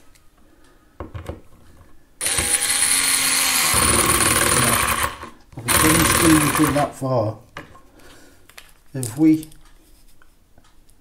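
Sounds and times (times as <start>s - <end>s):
electric screwdriver whining: 2.2s - 6.9s.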